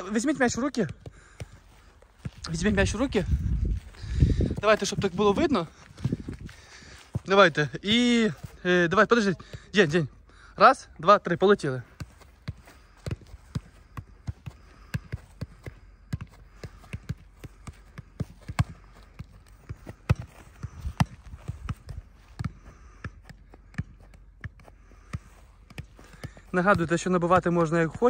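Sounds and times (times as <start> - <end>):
dull thuds of footballs kicked: 11.8 - 28.0.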